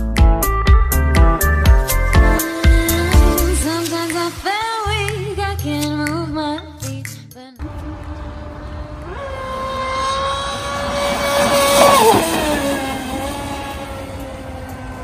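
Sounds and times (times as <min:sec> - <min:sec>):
rc boat motor whining: 0:01.4 - 0:05.1, 0:07.6 - 0:15.0
hiss of spray: 0:03.4 - 0:05.3.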